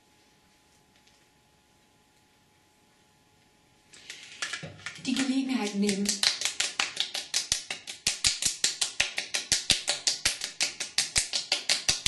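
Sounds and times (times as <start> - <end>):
fingertips slapping skin: 5.7 - 12.0.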